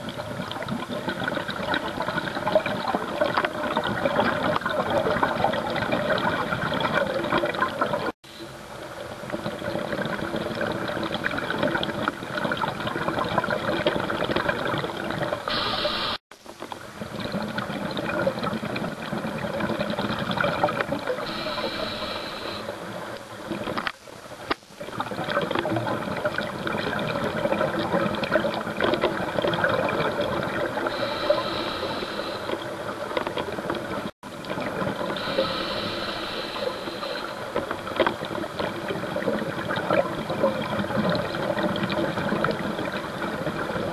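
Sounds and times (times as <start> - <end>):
scuba regulator bubbling underwater: 0.0 - 8.1, 9.0 - 43.9
short hisses: 15.5 - 16.2, 21.3 - 22.7, 30.9 - 32.5, 35.2 - 37.4.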